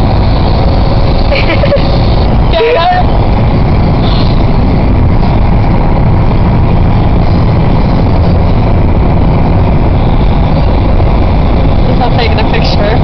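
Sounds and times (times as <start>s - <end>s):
road and engine noise inside vehicle: 0.0s - 13.0s.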